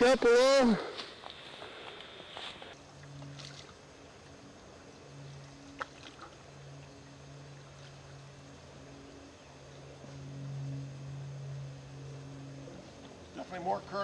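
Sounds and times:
canoe paddling: 0.0 - 10.0
low steady hum: 0.0 - 14.0.

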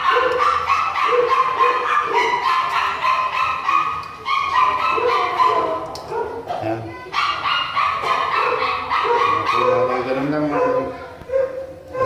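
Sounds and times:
dog barking and yipping: 0.0 - 12.0.

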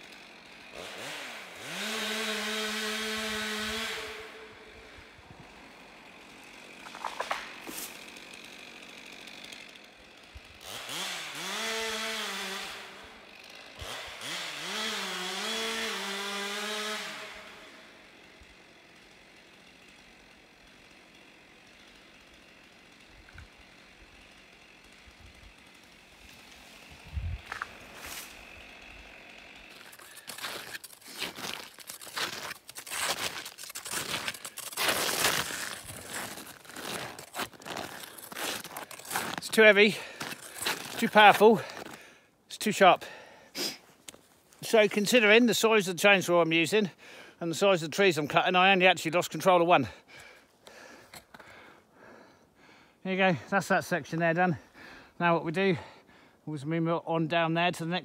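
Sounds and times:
chainsaw revving: 0.0 - 52.3
footsteps crunching in snow: 6.9 - 8.0, 26.8 - 28.5, 29.7 - 42.0.

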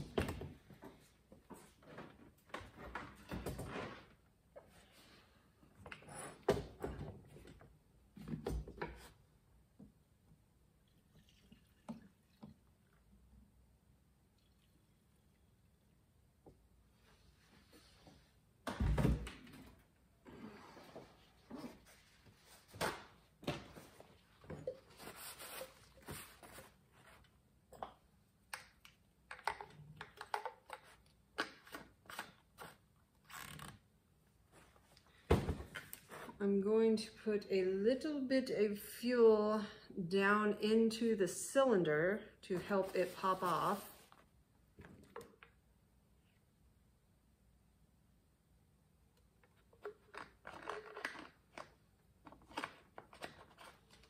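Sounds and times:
paper towel rustling: 42.8 - 44.2.

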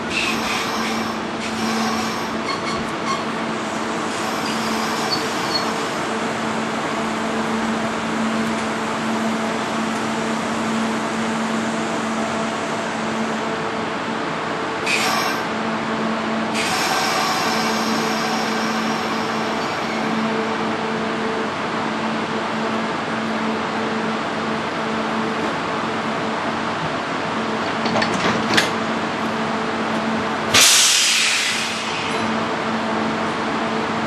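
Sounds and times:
train creeping slowly: 0.0 - 34.0
burst of hiss: 30.6 - 32.1.

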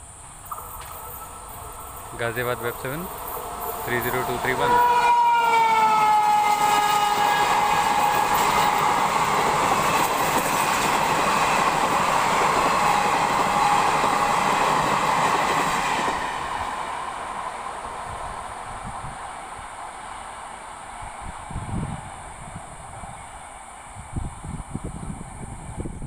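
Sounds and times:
passenger train coaches rattling by: 0.0 - 26.0
electric locomotive horn: 0.5 - 10.1, 12.2 - 14.6.

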